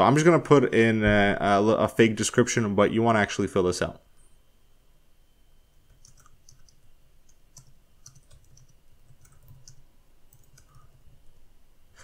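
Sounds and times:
keyboard typing clicks: 5.8 - 11.2.

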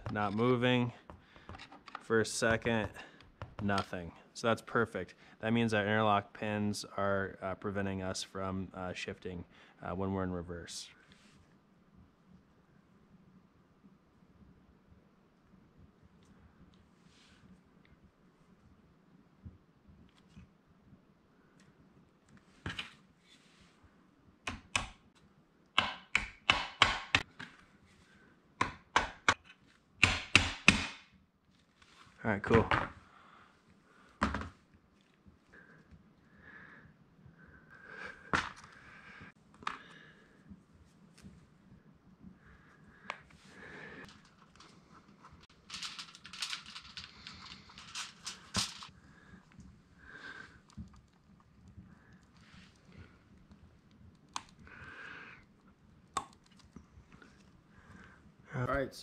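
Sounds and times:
aluminium foil crinkling: 45.4 - 49.0.

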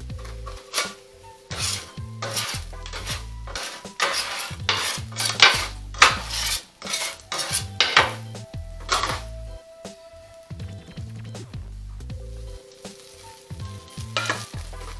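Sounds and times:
metal spatula scraping griddle: 0.2 - 9.3, 12.7 - 14.9.

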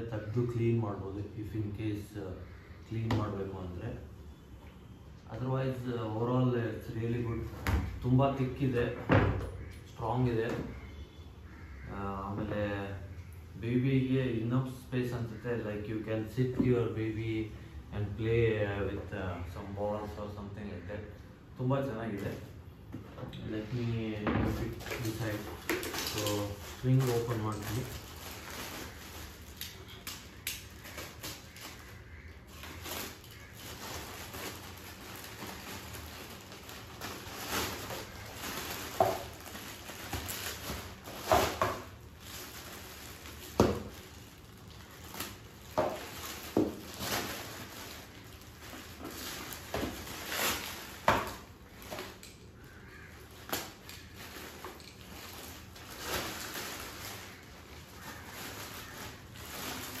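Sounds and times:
plastic rustling and crinkling: 21.6 - 60.0.

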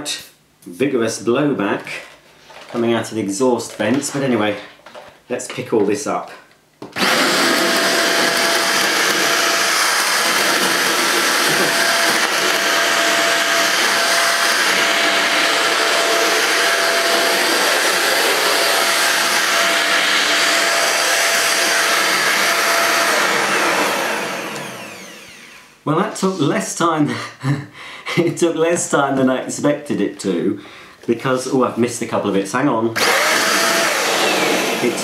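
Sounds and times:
handheld vacuum cleaner running: 7.0 - 25.8, 33.0 - 35.0.

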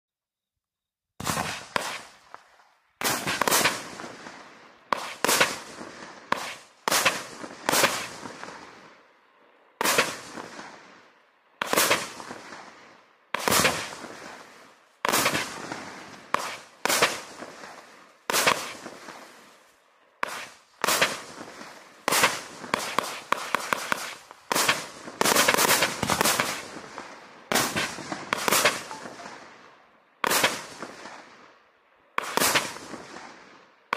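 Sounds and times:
firework shots banging: 1.2 - 4.2, 4.9 - 8.4, 13.4 - 14.1, 15.1 - 15.8, 20.2 - 21.5, 22.1 - 29.5, 32.2 - 33.0.

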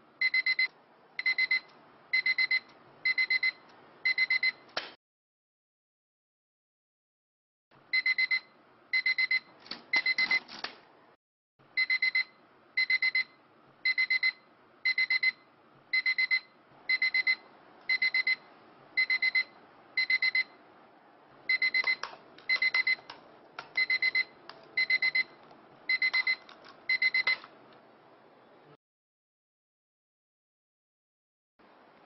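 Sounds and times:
alarm clock beeping: 0.2 - 4.6, 8.0 - 10.4, 11.8 - 13.3, 13.9 - 15.4, 16.0 - 18.4, 19.0 - 20.5, 21.5 - 23.1, 23.8 - 27.5.

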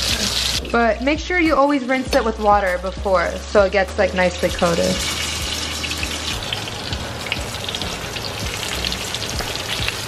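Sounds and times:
chicken sizzling in a pan: 0.0 - 0.6, 4.8 - 10.0.

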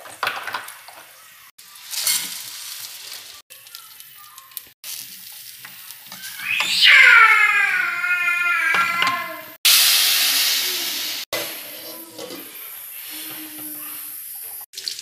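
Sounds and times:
rice sizzling in hot fat: 0.1 - 6.4, 9.6 - 15.0.

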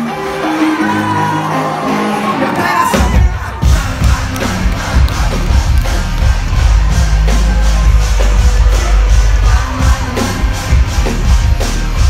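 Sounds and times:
live rock band playing: 0.0 - 12.0.

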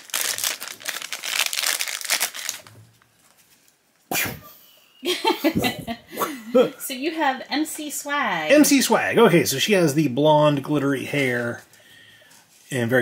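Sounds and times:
plastic wrapper crinkling: 0.0 - 3.9.

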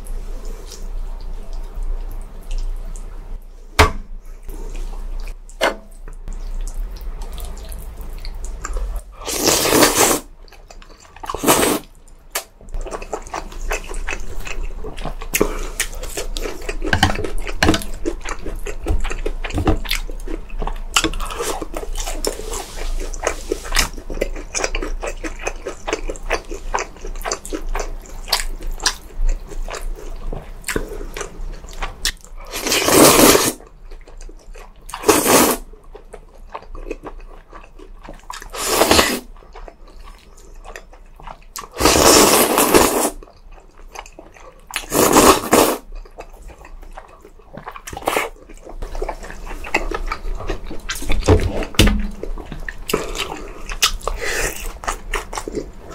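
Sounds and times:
person chewing: 4.4 - 55.9
slurping noodles: 9.2 - 10.3, 11.3 - 11.9, 32.5 - 33.6, 35.0 - 35.6, 38.5 - 39.3, 41.8 - 43.2, 44.8 - 45.8.

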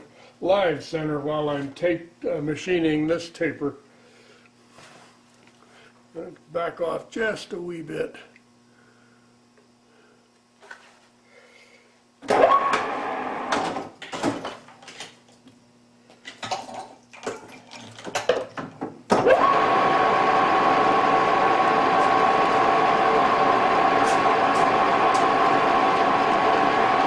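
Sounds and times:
lathe spindle running with gear whine: 12.3 - 13.5, 19.2 - 27.0.

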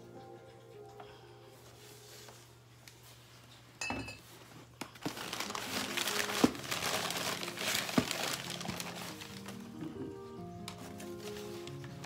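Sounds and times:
ceramic mug clinking: 3.8 - 4.2
packing paper crinkling: 4.8 - 9.8, 10.7 - 12.0.

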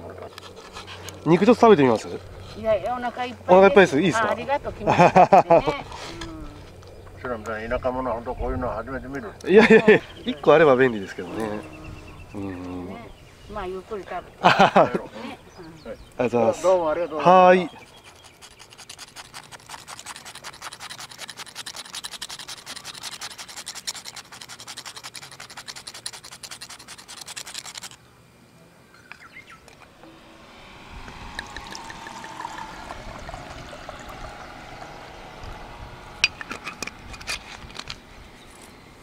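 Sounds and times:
salt grater rasping: 17.7 - 28.0.

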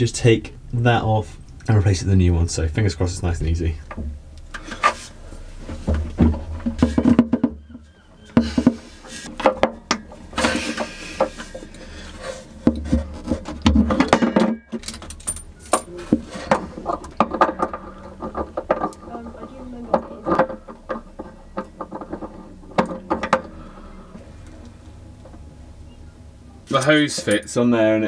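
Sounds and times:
metal scraping: 8.4 - 25.5.

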